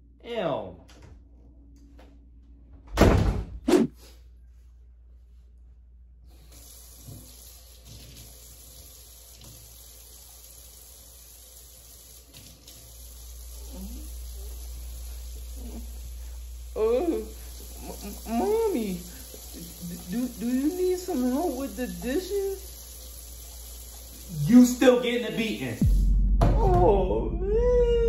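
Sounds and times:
loud thuds: 0:02.9 - 0:03.9
faucet running into sink: 0:06.3 - 0:25.8.

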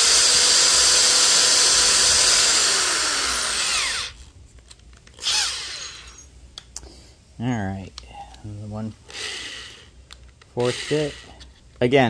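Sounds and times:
electric drill boring wood: 0:00.0 - 0:04.2, 0:05.2 - 0:05.8, 0:10.6 - 0:11.4.

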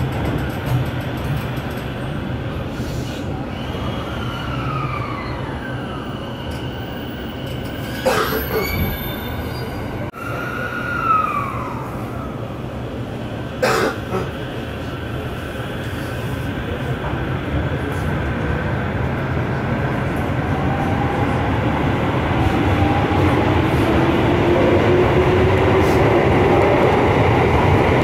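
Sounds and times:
train low rumble: 0:00.0 - 0:28.0.

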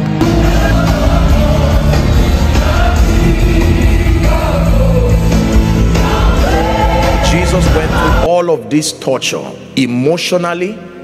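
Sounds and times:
gospel choir with band: 0:00.0 - 0:08.3.

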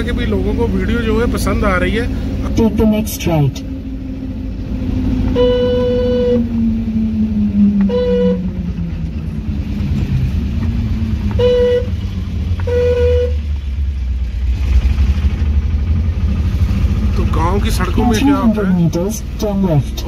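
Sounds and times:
goods vehicle engine rumbling: 0:00.0 - 0:20.0
vehicle horn tooting: 0:05.3 - 0:06.5, 0:07.9 - 0:08.6, 0:11.3 - 0:12.0, 0:12.6 - 0:13.5.

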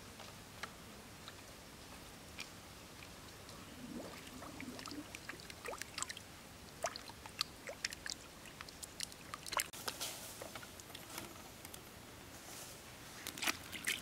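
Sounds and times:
small water splashes and drips: 0:02.4 - 0:09.8, 0:13.4 - 0:14.0.

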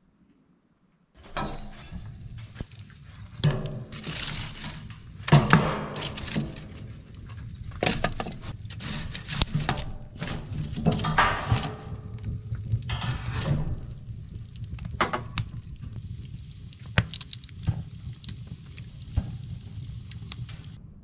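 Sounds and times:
fire crackling: 0:01.2 - 0:20.8
logs knocking and clattering: 0:01.3 - 0:16.0.

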